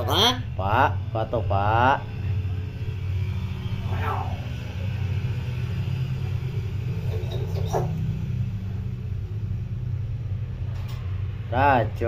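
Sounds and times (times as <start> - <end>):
low mechanical hum: 0.0 - 12.0.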